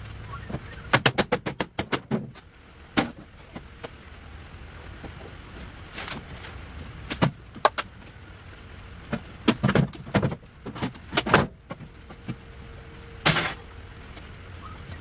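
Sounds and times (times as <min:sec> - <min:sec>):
metal clatter: 0:13.2 - 0:13.7
trailer parts clanking: 0:13.2 - 0:13.7.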